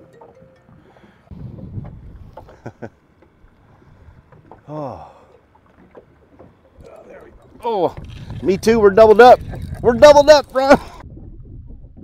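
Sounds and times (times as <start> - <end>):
wind rumbling on microphone: 1.3 - 4.6, 6.8 - 12.0.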